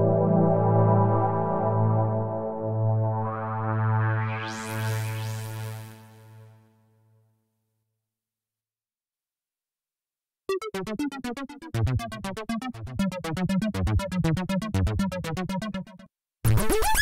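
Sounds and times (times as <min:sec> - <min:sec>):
step-sequenced synth bass: 0:10.5 - 0:17.0.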